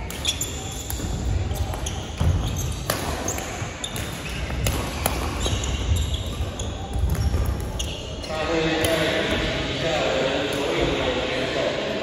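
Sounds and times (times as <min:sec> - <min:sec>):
racket hitting shuttlecock: 0:00.0 - 0:07.7
shoe squeaks: 0:00.1 - 0:04.5, 0:05.2 - 0:08.4.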